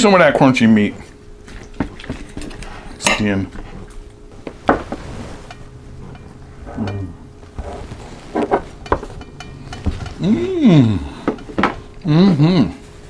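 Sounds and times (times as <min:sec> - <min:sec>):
person humming: 0:06.6 - 0:07.3, 0:10.1 - 0:11.4, 0:12.0 - 0:12.9.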